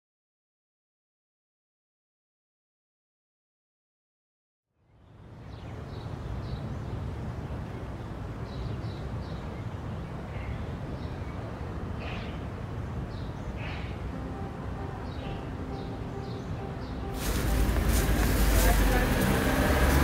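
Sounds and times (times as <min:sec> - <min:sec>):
small birds chirping: 0:04.9 - 0:20.0
steady low rumble: 0:12.8 - 0:20.0.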